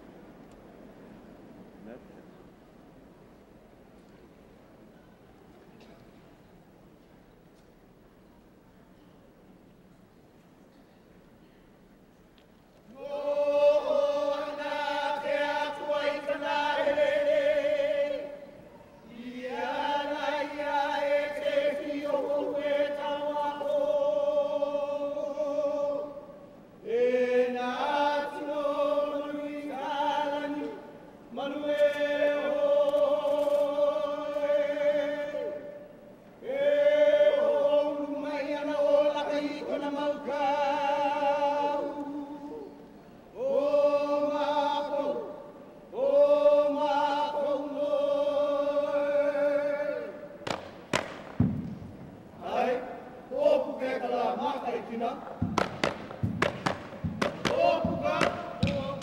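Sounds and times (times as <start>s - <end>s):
men chanting in unison: 13.0s - 35.8s, 52.4s - 59.0s.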